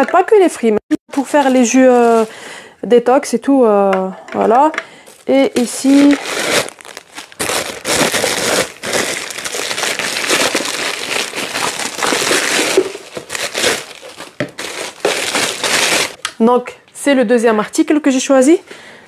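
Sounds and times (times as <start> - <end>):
plastic bag crinkling: 1.1 - 2.5, 5.0 - 16.2.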